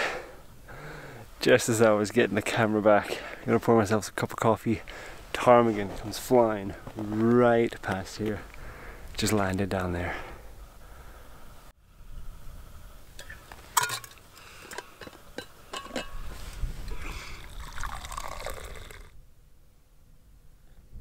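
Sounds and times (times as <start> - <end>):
metal cup clinking: 13.8 - 16.2
coffee pouring into cup: 17.4 - 19.1.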